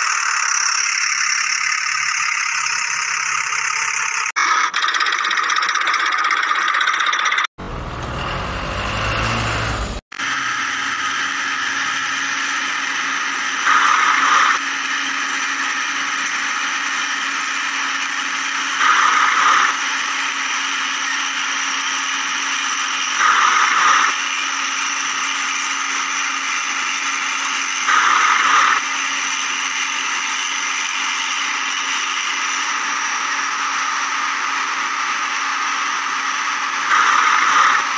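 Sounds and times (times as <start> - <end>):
toy gear motors whining: 0.0 - 7.5, 10.2 - 37.9.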